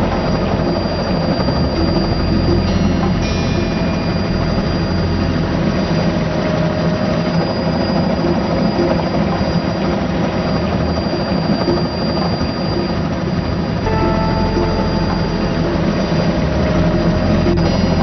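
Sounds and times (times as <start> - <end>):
helicopter engine and rotor: 5.2 - 13.8.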